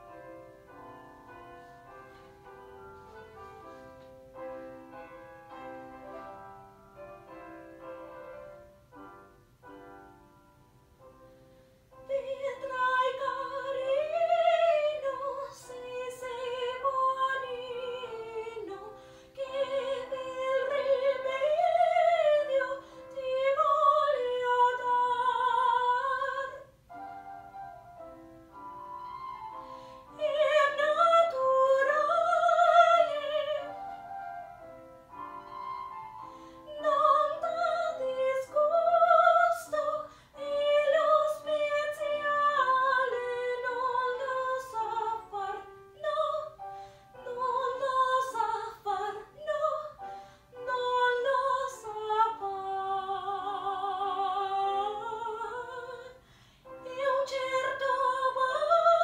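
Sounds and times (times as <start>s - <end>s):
woman singing operatically: 12.0s - 26.7s, 30.1s - 33.8s, 36.7s - 46.6s, 47.2s - 59.0s.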